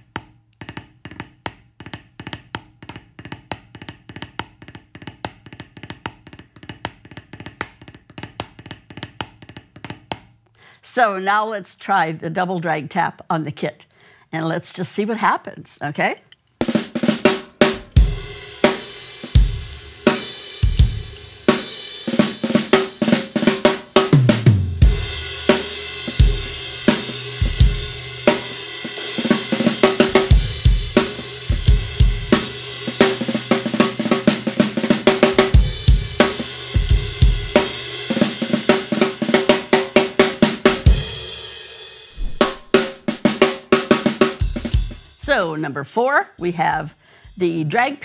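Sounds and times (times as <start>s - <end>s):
acoustic drum kit groove: 0.0s - 10.2s, 16.6s - 48.0s
snare drum drags and taps: 0.0s - 10.3s, 29.6s - 30.4s, 42.2s - 43.2s
bass drum: 29.8s - 32.3s, 42.2s - 43.1s.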